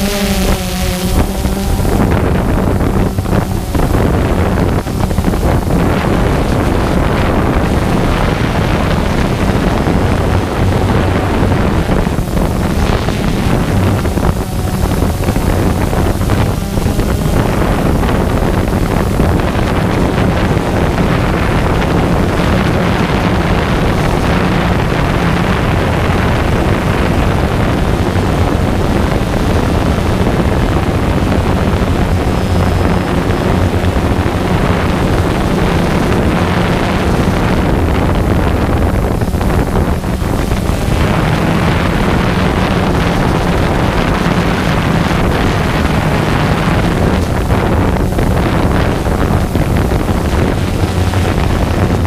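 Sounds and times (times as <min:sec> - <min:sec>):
drone propellers buzzing: 0:00.0 - 0:52.0
wind noise: 0:00.0 - 0:52.0.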